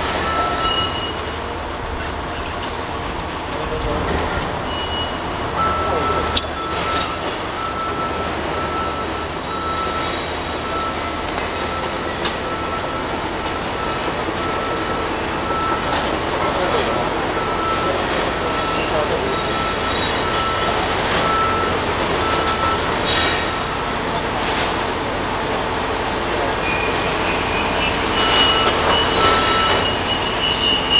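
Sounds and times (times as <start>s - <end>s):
thin high-pitched squeals: 0.0s - 1.2s, 26.7s - 30.9s
short beeps: 0.0s - 1.3s, 4.7s - 23.7s, 26.6s - 30.9s.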